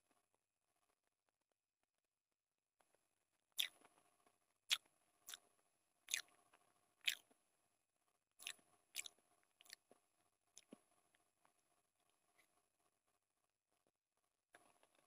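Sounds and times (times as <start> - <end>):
wet chewing mouth smacks: 6.1 - 6.3.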